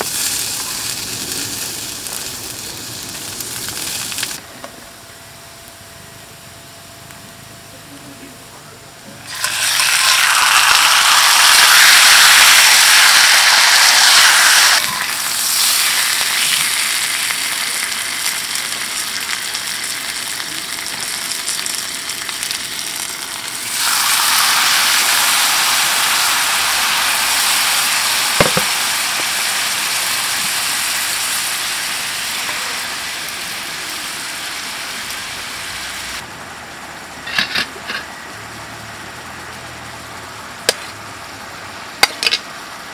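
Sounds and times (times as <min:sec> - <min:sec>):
sauce sizzling in a pan: 0:00.0 - 0:04.4, 0:09.2 - 0:36.2
steak sizzling in a skillet: 0:00.0 - 0:04.4, 0:09.2 - 0:36.2.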